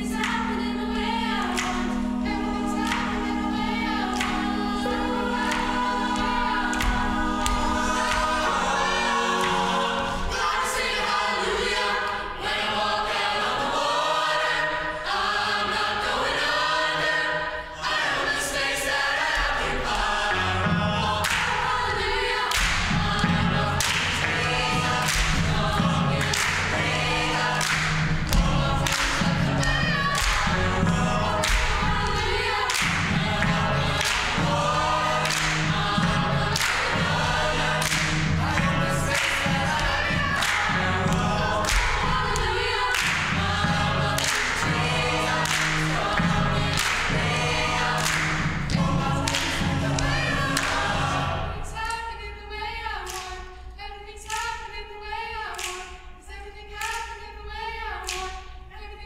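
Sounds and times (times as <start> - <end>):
choir singing in harmony: 0.0 - 59.0
clapped beat: 0.1 - 11.8, 19.2 - 51.3, 53.1 - 53.4, 54.3 - 54.6, 56.8 - 57.1.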